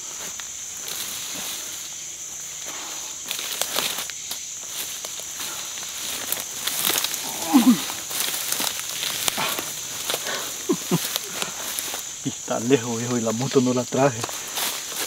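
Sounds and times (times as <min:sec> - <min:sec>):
brush rustling: 0:00.0 - 0:15.0
night insects chorus: 0:00.0 - 0:15.0
twigs snapping: 0:03.2 - 0:13.6
low grunt: 0:07.2 - 0:08.0.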